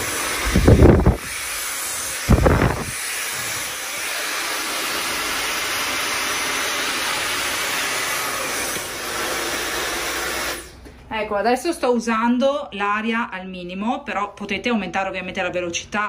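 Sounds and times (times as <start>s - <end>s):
hair dryer blowing: 0.0s - 10.9s
wind buffeting microphone: 0.4s - 1.3s, 2.3s - 3.0s.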